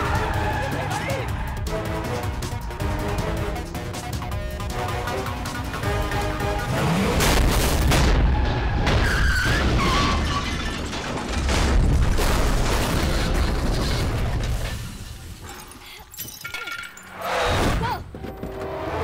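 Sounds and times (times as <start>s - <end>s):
dramatic music: 0.0s - 9.1s
crashing metal: 7.2s - 17.1s.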